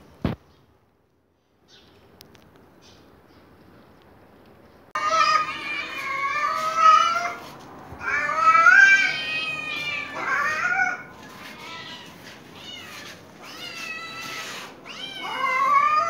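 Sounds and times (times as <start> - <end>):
cats meowing: 5.0 - 16.0.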